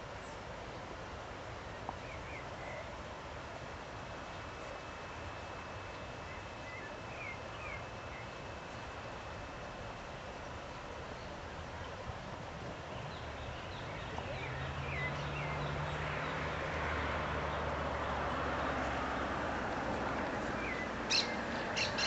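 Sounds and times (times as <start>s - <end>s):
outdoor background noise: 0.0s - 22.0s
bird calls: 20.6s - 22.0s.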